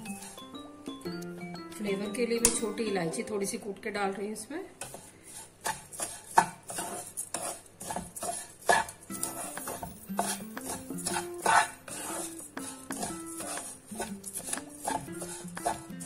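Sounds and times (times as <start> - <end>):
wooden spatula scraping a pan: 0.0 - 0.5, 4.8 - 16.0
soft background music: 0.0 - 4.6, 8.7 - 16.0.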